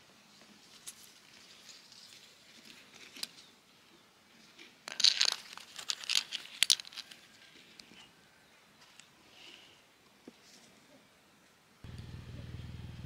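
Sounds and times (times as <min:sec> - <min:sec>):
crinkly rustling of greens: 0:00.2 - 0:03.6, 0:04.3 - 0:07.8.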